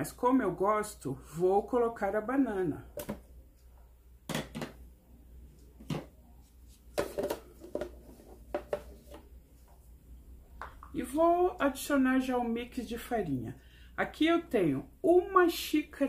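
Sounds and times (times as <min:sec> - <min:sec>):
kitchenware set on stone countertop: 0:02.9 - 0:11.6.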